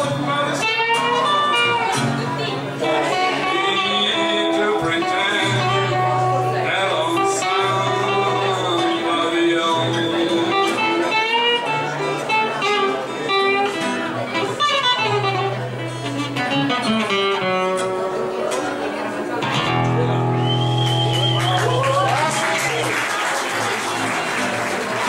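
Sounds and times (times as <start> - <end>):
person singing: 0.0 - 1.8, 2.8 - 11.9
acoustic guitars playing: 0.0 - 25.0
harmonica: 2.9 - 18.2.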